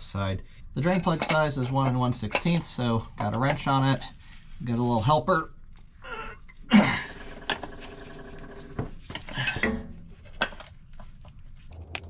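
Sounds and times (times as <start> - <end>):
wrenches clanking on metal: 0.8 - 3.7, 9.2 - 10.7.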